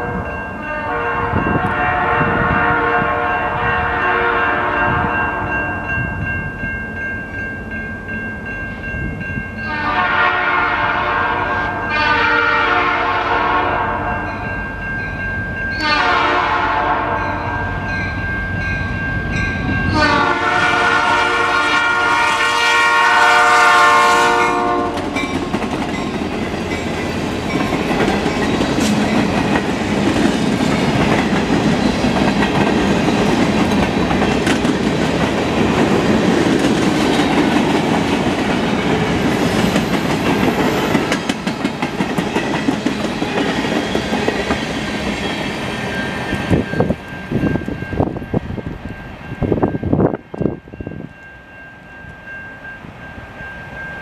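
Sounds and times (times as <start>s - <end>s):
locomotive air horn blasts: 0.0s - 5.6s, 9.6s - 14.2s, 15.8s - 17.6s, 19.9s - 25.2s
train wheels on rails: 17.4s - 54.0s
clickety-clack over rail joints: 24.8s - 45.8s.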